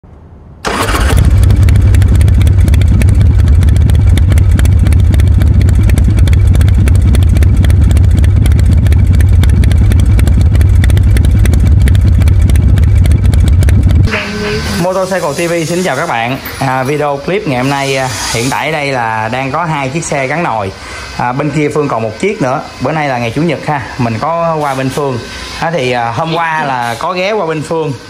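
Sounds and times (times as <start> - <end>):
motor scooter engine idling: 0.6 - 17.9.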